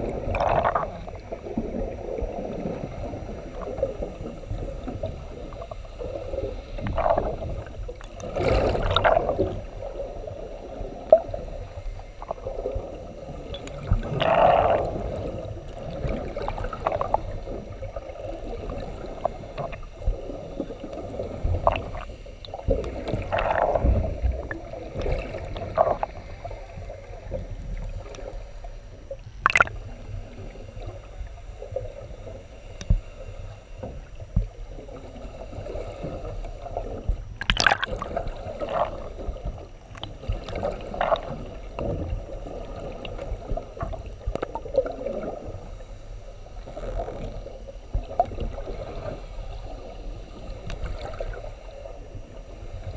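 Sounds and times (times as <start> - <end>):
water sloshing and gurgling underwater: 0.0 - 52.9.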